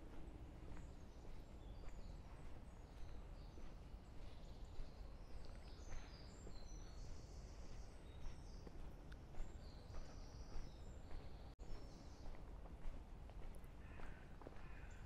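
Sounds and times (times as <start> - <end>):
small birds chirping: 0.5 - 12.6.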